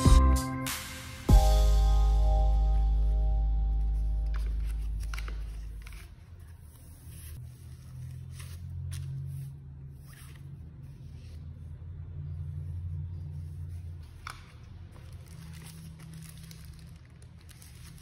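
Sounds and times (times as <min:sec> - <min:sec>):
low steady hum: 0:01.3 - 0:08.6
paper and plastic packaging rustling: 0:04.2 - 0:09.4, 0:14.0 - 0:18.0.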